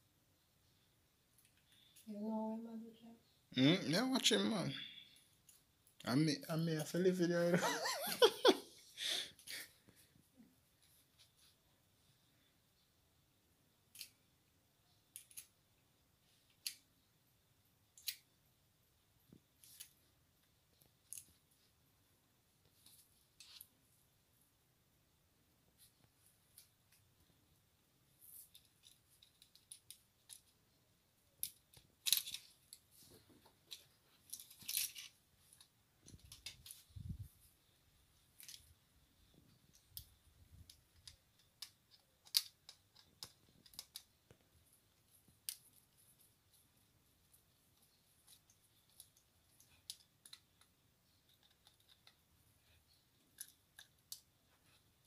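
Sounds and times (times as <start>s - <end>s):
small metallic clicks and scrapes: 13.9s - 14.2s, 15.1s - 15.6s, 20.7s - 21.5s, 22.6s - 23.8s, 28.2s - 30.6s, 31.4s - 37.1s, 38.2s - 55.0s.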